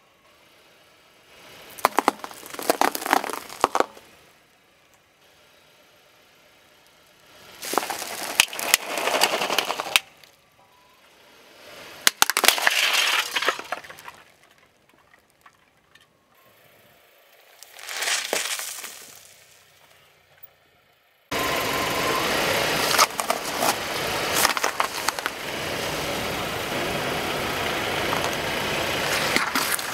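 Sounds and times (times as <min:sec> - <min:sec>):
candy bag crunching under tyre: 0:01.7 - 0:04.0, 0:07.5 - 0:10.4, 0:12.1 - 0:14.4, 0:17.6 - 0:19.6, 0:22.8 - 0:25.4, 0:29.0 - 0:29.9
lollipop cracking under car tyre: 0:01.7 - 0:04.0, 0:07.6 - 0:10.3.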